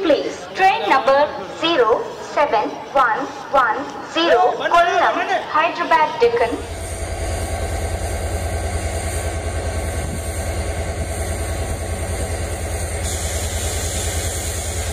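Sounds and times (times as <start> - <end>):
diesel locomotive engine throbbing: 5.7 - 14.9.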